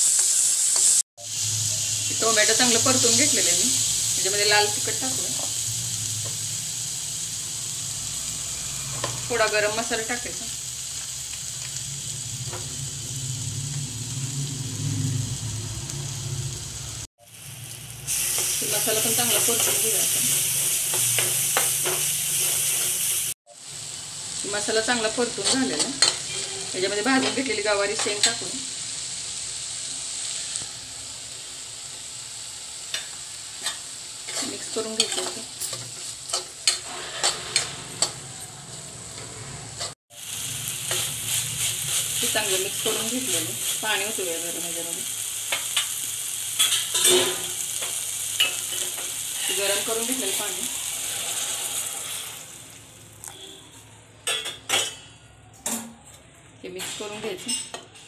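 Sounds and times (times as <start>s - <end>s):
spices sizzling in oil: 0.0s - 53.4s
metal spoon scraping a pan: 18.1s - 23.2s, 25.3s - 28.5s, 33.0s - 40.0s, 46.6s - 52.4s.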